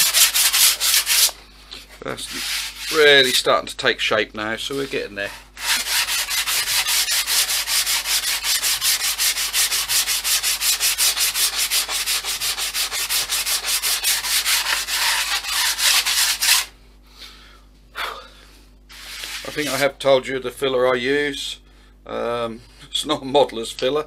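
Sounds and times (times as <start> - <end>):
sandpaper rubbing: 0.0 - 1.4, 2.3 - 3.5, 4.7 - 16.7, 18.9 - 19.8.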